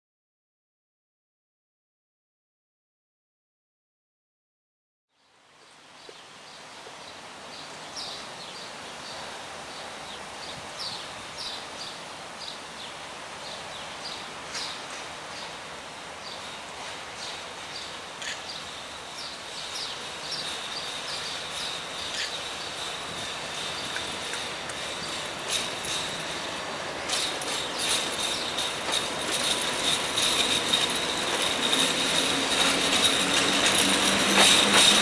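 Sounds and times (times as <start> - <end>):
songbirds chirping: 5.1 - 31.7
light rain hiss: 5.2 - 31.7.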